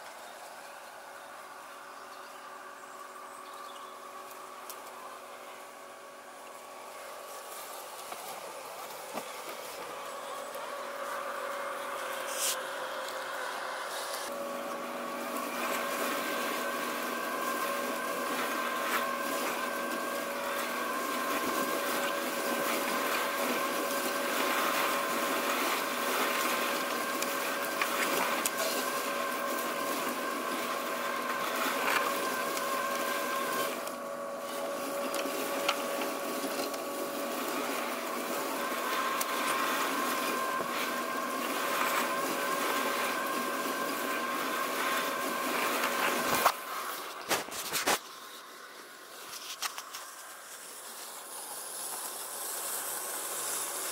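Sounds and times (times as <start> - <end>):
robotic lawn mower motor whine: 0.0 - 53.9
rushing hiss: 50.0 - 53.9.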